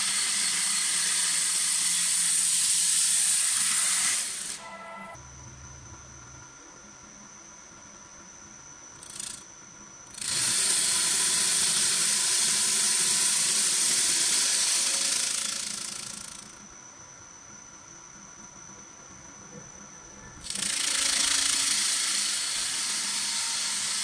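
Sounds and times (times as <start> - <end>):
lathe cutter hissing on wood: 0.0 - 4.8, 10.2 - 16.1, 20.5 - 24.0
faint high whine: 0.0 - 24.0.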